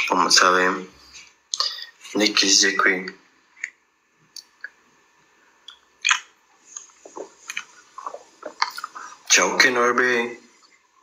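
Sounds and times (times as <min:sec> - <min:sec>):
person chewing: 0:05.6 - 0:09.3.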